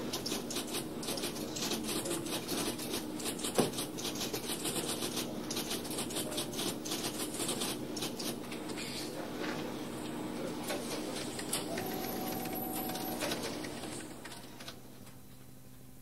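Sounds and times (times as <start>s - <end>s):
machine hum: 9.7s - 16.0s
keyboard typing: 11.7s - 14.4s.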